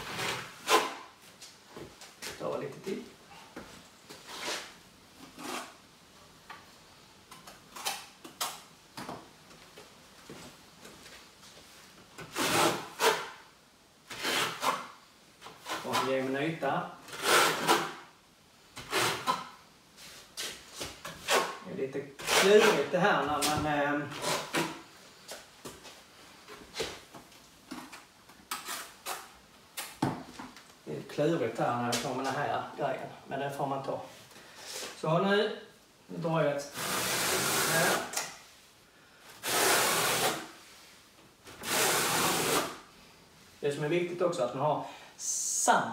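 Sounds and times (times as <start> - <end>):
trowel scraping in bucket: 22.2 - 22.9.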